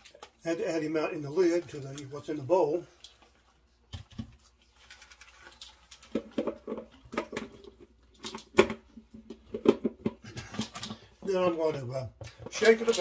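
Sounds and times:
popcorn shifting in a bowl: 0.0s - 13.0s
plastic bowl and lid knocking: 8.5s - 10.9s.

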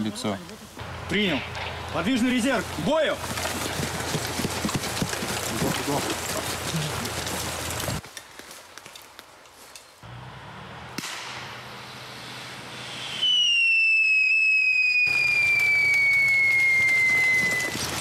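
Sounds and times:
footsteps in dry leaves: 1.9s - 10.0s
pyrotechnic hiss: 11.0s - 16.5s
shrill whistle sliding down: 12.9s - 17.8s.

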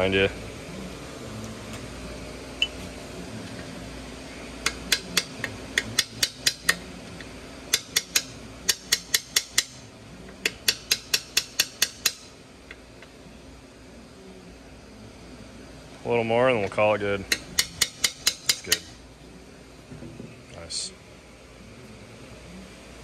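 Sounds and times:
hammer tapping metal punch: 7.7s - 12.2s, 17.3s - 18.9s.

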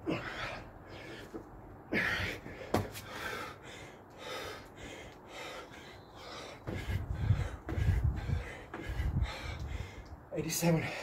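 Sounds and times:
man breathing hard: 0.0s - 11.0s.

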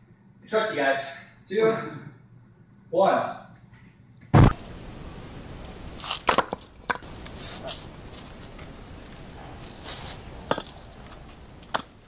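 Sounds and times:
bricks knocking and scraping: 6.0s - 12.0s.

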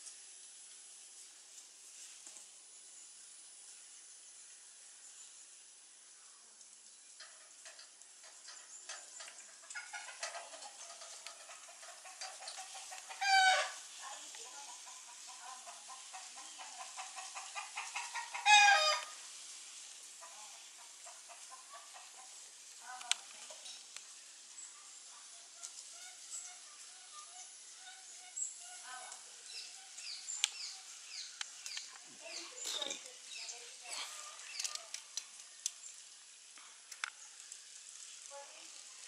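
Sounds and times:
hen-like cackling calls: 11.4s - 13.8s, 14.8s - 19.2s.

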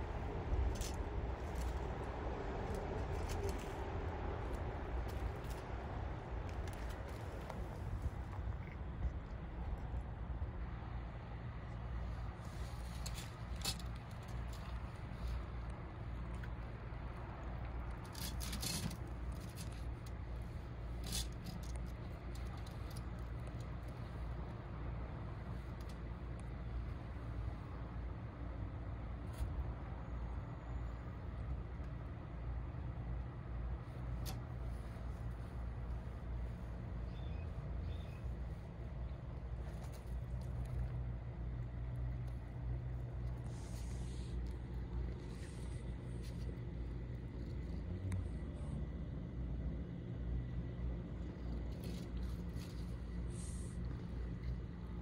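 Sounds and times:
soft rustle: 0.0s - 10.0s, 10.9s - 32.0s, 33.7s - 48.8s, 50.4s - 55.0s
low steady rumble: 0.0s - 55.0s
cat fur rustling on concrete: 37.9s - 47.5s.

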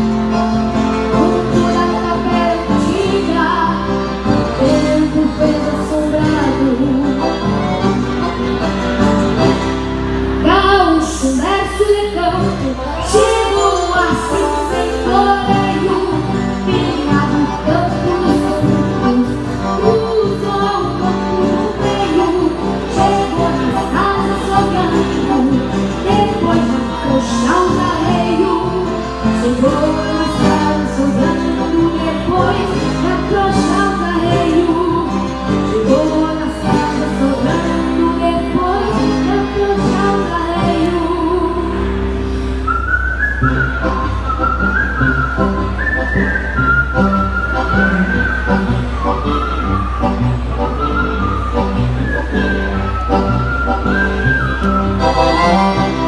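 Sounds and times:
acoustic guitar: 0.0s - 56.0s
piano accordion: 0.0s - 56.0s
whistled melody: 42.6s - 56.0s.

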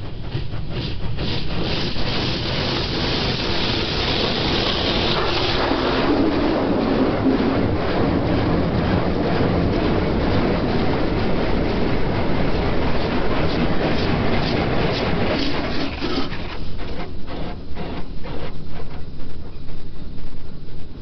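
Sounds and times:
car wash water jets spraying: 1.3s - 18.0s.

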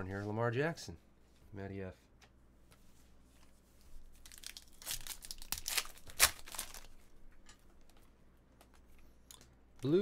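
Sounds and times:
foil pack ripping open: 4.2s - 6.9s
foil wrapper crinkling: 4.2s - 7.0s.

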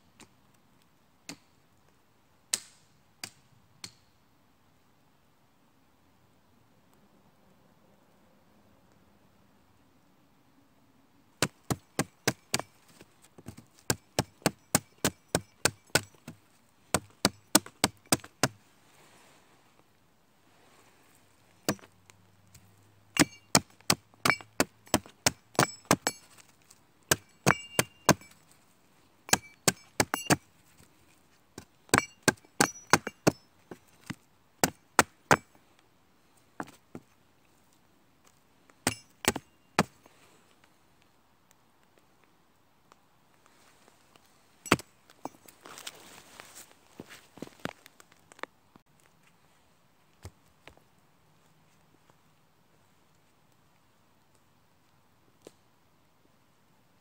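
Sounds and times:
hatchet chopping wood: 11.4s - 12.8s, 13.4s - 18.6s, 21.7s - 21.9s, 23.2s - 26.4s, 27.1s - 28.4s, 29.3s - 30.4s, 31.6s - 33.4s, 34.0s - 35.5s, 38.8s - 40.0s.

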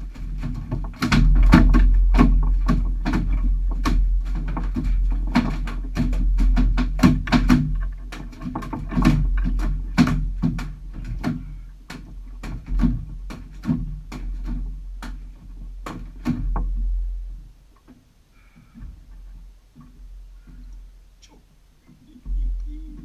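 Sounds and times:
hollow knocks on metal boat hull: 0.1s - 17.1s
steady low rumble: 19.0s - 23.0s.

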